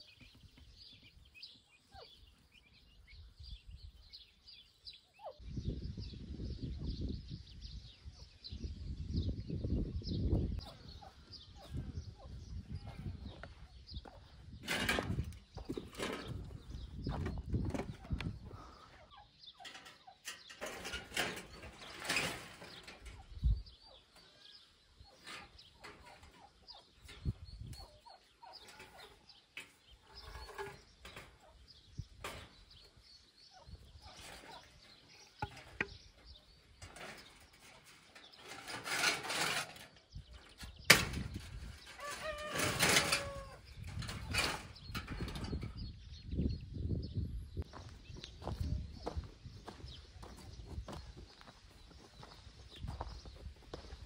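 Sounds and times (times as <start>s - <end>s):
metal sheet scraping and rattling: 14.6s - 18.2s, 19.6s - 23.6s, 25.2s - 32.8s, 33.9s - 45.9s.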